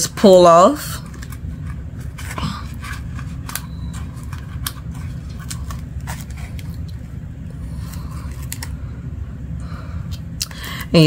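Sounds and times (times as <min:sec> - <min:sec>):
steady low hum: 0:00.0 - 0:11.0
paper wrapper crinkling: 0:01.0 - 0:07.0, 0:07.7 - 0:08.8.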